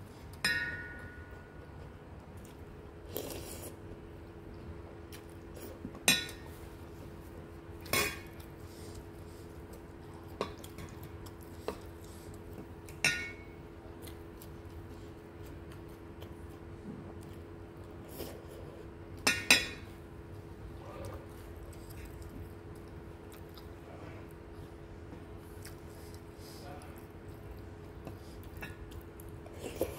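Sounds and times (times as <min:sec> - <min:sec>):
faint steady hum: 0:00.0 - 0:29.9
utensils clinking on metal bowl: 0:13.0 - 0:13.5.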